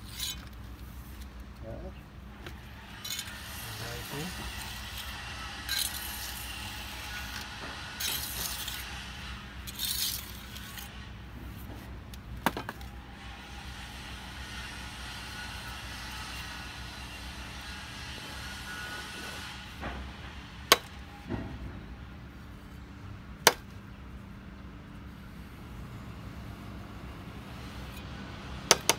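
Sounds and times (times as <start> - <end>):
metal trowels scraping and clinking: 0.0 - 1.3, 2.6 - 11.7.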